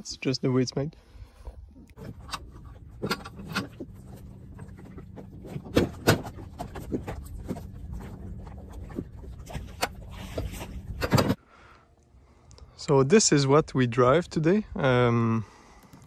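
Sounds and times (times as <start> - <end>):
steady low hum: 0.0 - 16.0
metal frame clanking on wooden boards: 2.0 - 11.4.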